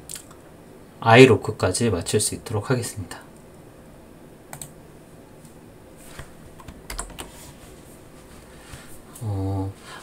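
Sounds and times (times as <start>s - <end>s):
faint room noise: 0.0s - 10.0s
computer keyboard and mouse clicks: 4.5s - 4.8s, 6.6s - 7.3s.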